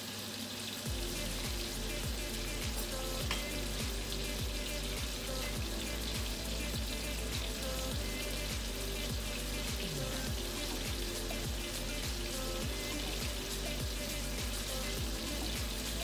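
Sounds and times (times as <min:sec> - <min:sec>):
meat sizzling in a pan: 0:00.0 - 0:16.0
background music: 0:00.9 - 0:16.0.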